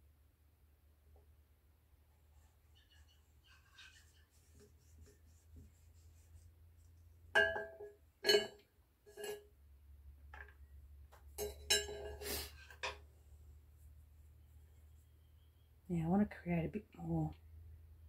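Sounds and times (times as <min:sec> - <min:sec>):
clay tools clinking: 0:07.4 - 0:09.4, 0:11.2 - 0:13.1.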